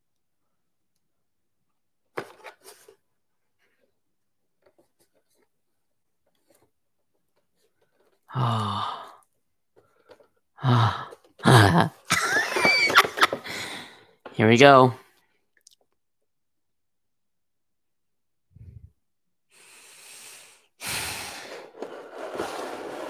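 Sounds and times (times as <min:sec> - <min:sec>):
man sighing: 0:08.3 - 0:09.2, 0:10.6 - 0:12.0.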